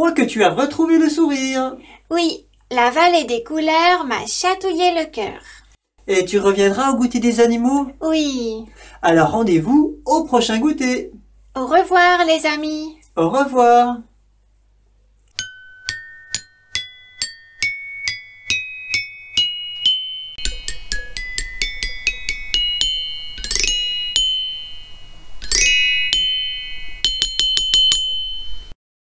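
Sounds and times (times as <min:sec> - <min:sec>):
high-pitched jingle melody: 0:15.4 - 0:28.8.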